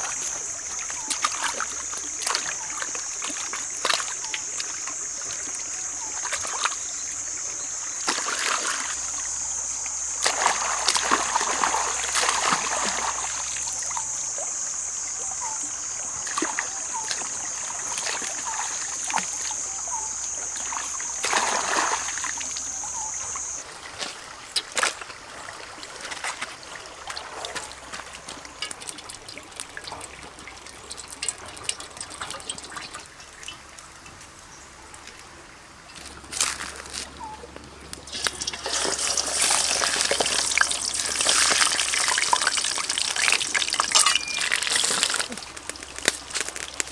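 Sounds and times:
trickle of running water: 0.0s - 46.9s
water splashing and sloshing: 0.0s - 46.9s.

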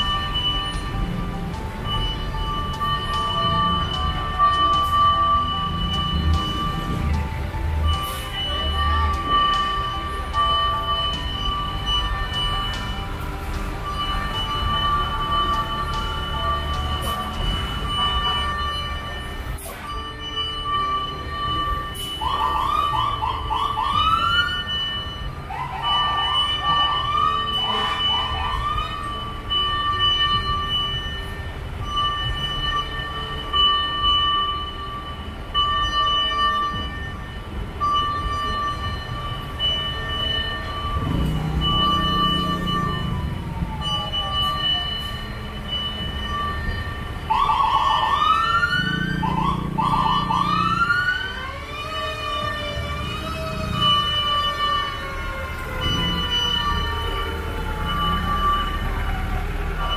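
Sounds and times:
fire truck siren yelping: 0.0s - 59.9s.

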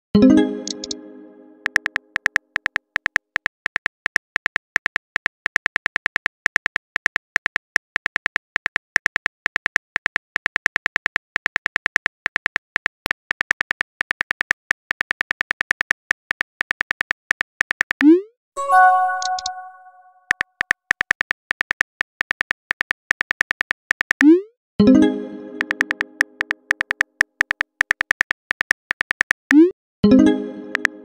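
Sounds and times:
smartphone keyboard clicks: 1.7s - 8.8s, 25.6s - 29.5s.

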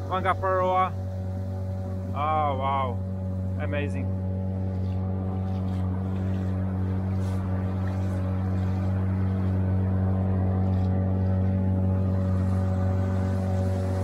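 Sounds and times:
outboard motor idling: 0.0s - 14.0s.

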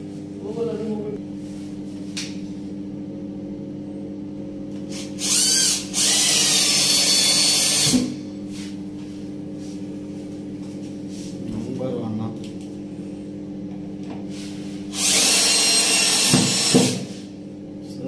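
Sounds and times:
cordless drill driving a screw: 5.2s - 8.0s, 14.9s - 16.9s.

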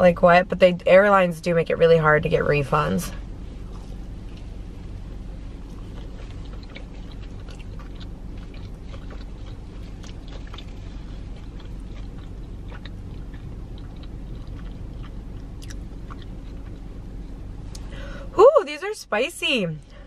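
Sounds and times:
steady low hum: 0.0s - 20.0s
crisp chewing crunches: 3.6s - 17.0s.

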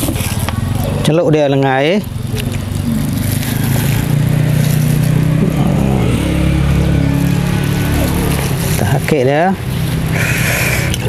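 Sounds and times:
small engine running: 0.0s - 11.0s.

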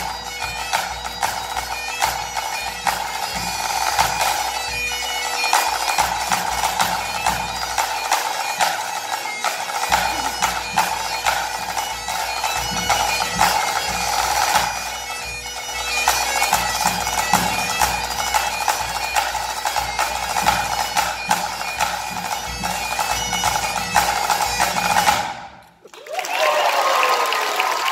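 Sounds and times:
bagpipe playing a tune: 0.0s - 25.6s
snare drum: 9.4s - 14.7s
applause: 25.8s - 27.9s.

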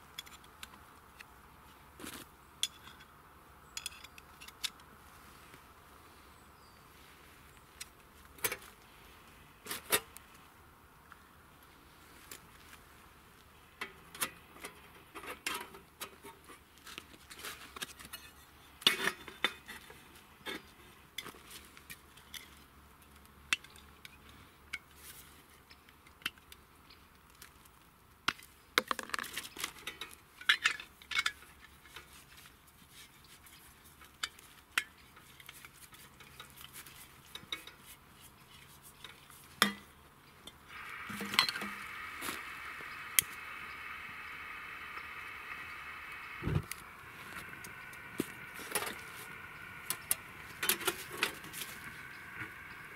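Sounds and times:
steady hiss: 30.6s - 52.9s.

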